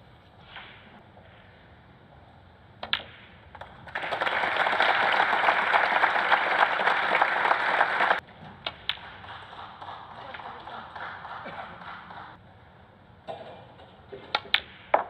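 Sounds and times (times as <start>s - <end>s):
audience applause: 3.9s - 8.2s, 9.0s - 12.4s.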